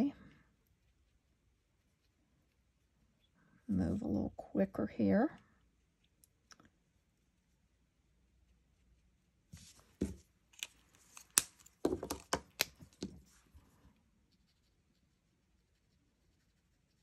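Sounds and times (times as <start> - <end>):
markers clicking and tapping: 10.0 - 13.3
marker scratching on paper: 15.6 - 17.0.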